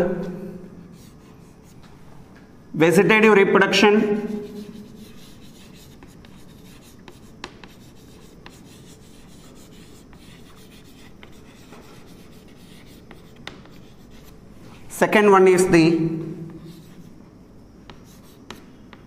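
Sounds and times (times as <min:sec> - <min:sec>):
chalk scratching on blackboard: 0:01.0 - 0:01.8, 0:04.2 - 0:14.4, 0:16.5 - 0:17.2, 0:17.9 - 0:18.7
chalk clicking on board: 0:04.4 - 0:14.4.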